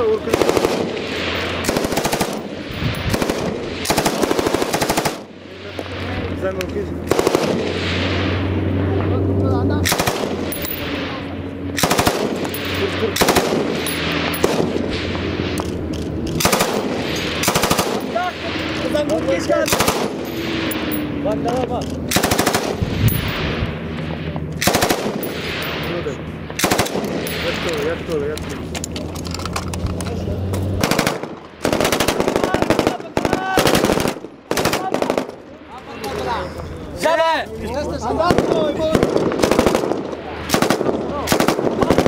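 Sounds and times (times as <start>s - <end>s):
rapid gunfire: 0.0s - 6.0s, 7.0s - 8.6s, 9.8s - 15.4s, 16.4s - 18.8s, 19.6s - 20.9s, 22.1s - 23.6s, 24.6s - 25.8s, 26.6s - 27.7s, 30.8s - 35.4s, 38.2s - 42.0s
machine gun bursts: 0.2s - 5.3s, 9.9s - 10.8s, 11.8s - 14.8s, 16.4s - 18.2s, 19.6s - 21.0s, 22.1s - 22.8s, 24.6s - 25.6s, 26.6s - 27.4s, 30.8s - 35.3s, 38.3s - 42.0s.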